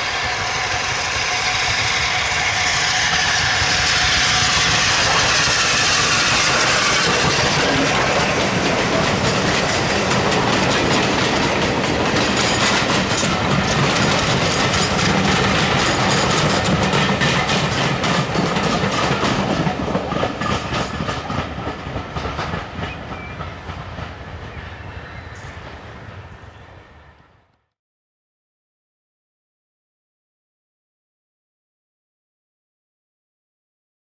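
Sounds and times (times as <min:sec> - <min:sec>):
train wheels clicking over rail joints: 0:00.3 - 0:26.0.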